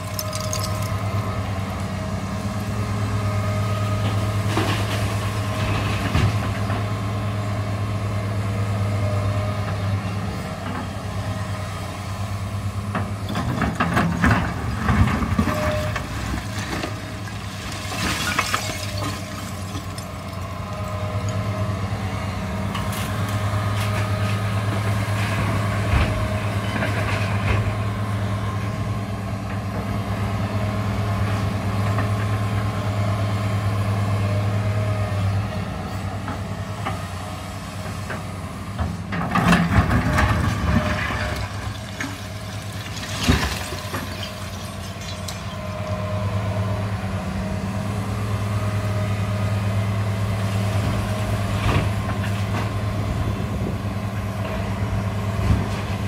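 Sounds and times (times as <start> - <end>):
debris knocks: 0.0 - 1.0, 16.2 - 21.4, 40.2 - 45.4
bucket clattering through rubble: 0.0 - 1.1, 13.8 - 21.5, 39.5 - 45.6
excavator diesel engine running: 0.0 - 56.0.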